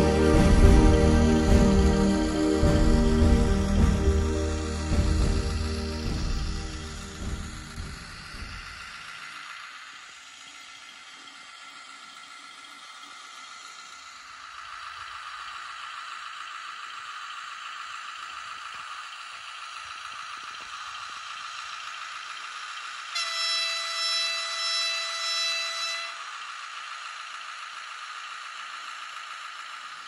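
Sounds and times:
locomotive horn: 0.0s - 8.6s, 23.1s - 26.3s
thin diesel engine sound: 0.0s - 30.0s.

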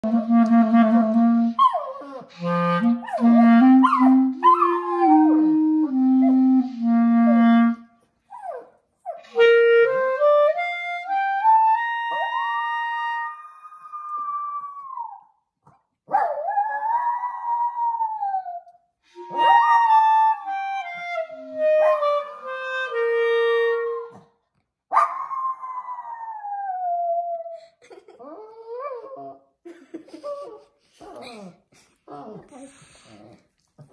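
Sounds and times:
clarinet playing: 0.0s - 14.0s, 19.1s - 24.2s.

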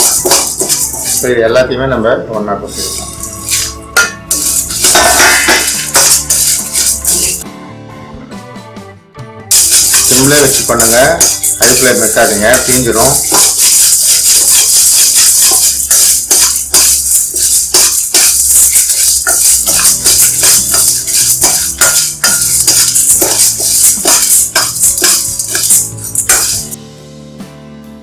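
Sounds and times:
lentils rattling against metal: 0.0s - 1.3s, 4.3s - 7.4s, 9.5s - 26.8s
spatula scraping metal pan: 0.0s - 1.3s, 2.7s - 7.4s, 9.5s - 26.8s.

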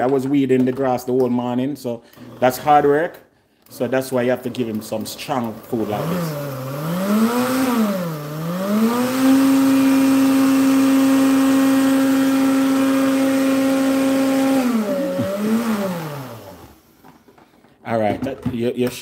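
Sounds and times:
blender motor whining: 2.1s - 3.0s, 3.7s - 17.1s.

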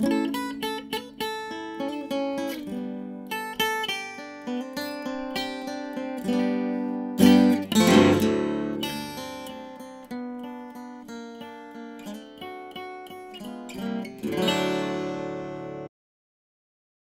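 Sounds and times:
acoustic guitar playing: 0.0s - 15.9s.

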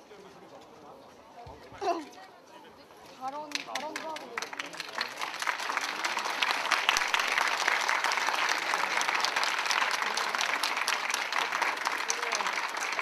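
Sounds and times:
crowd applauding: 3.5s - 13.0s.

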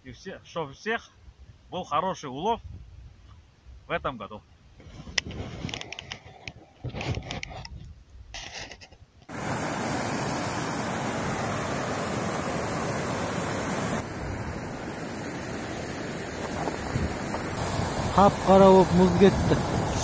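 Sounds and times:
river rushing over boulders: 9.3s - 20.0s.

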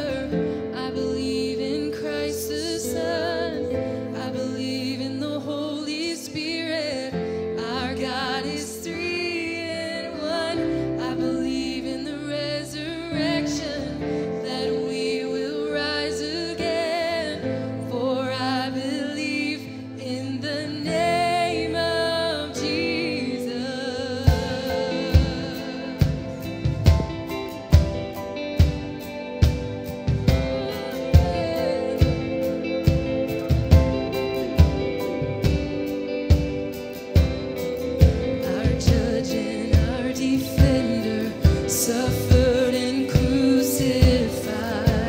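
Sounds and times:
live band chords: 0.0s - 5.9s, 20.8s - 45.0s
woman singing with vibrato: 0.0s - 28.1s, 30.1s - 36.2s, 38.0s - 45.0s.

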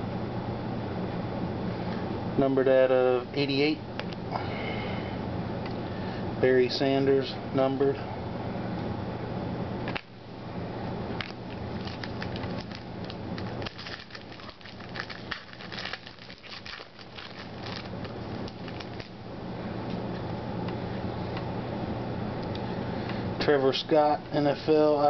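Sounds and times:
low room hum: 0.0s - 25.0s
wrapper crinkling: 11.2s - 19.2s.

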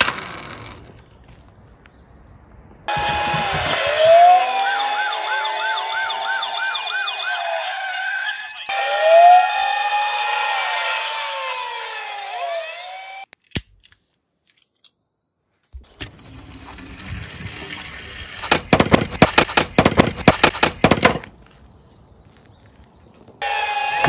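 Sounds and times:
toy van rolling on wood: 0.0s - 1.5s, 15.8s - 21.3s
police siren: 2.9s - 13.3s, 23.4s - 24.0s
toy van clattering over: 16.0s - 21.3s.

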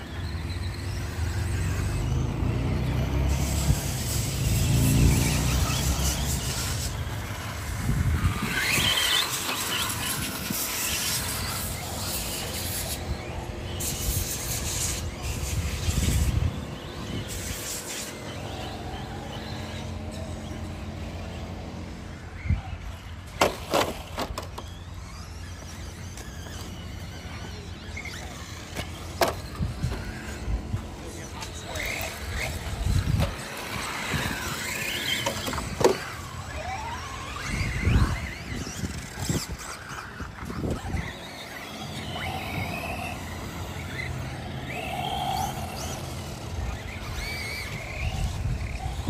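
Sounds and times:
tyre squeal: 0.0s - 21.0s
rc car motor whine: 0.0s - 49.0s.

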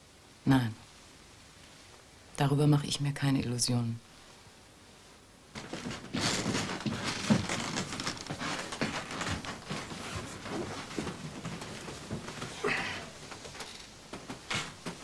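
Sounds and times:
clothing rustling: 5.5s - 15.0s
shuffling footsteps: 5.5s - 15.0s.

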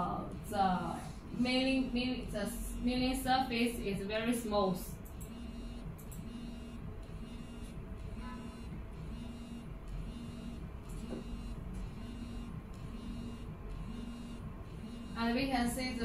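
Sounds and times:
machine hum with pulsing low tone: 0.0s - 16.0s
thin high whine: 5.2s - 16.0s.

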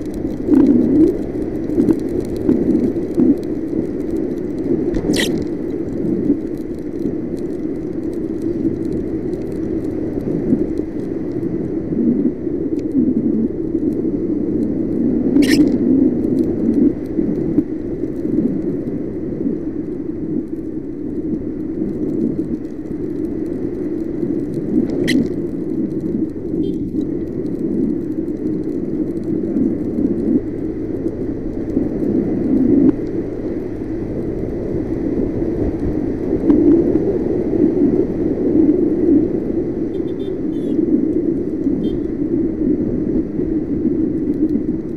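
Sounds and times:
wind and road rumble: 0.0s - 44.9s
sharp clicks: 0.1s - 9.9s, 15.4s - 15.8s, 24.0s - 27.6s.

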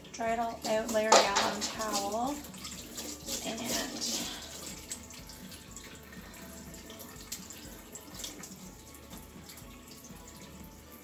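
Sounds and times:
water splashing over hair: 0.4s - 6.0s
tap running into steel sink: 0.6s - 2.3s.

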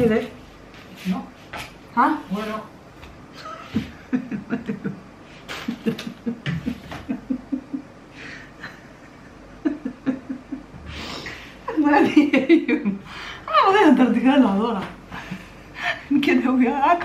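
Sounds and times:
woman laughing: 3.4s - 10.7s, 11.7s - 13.0s.

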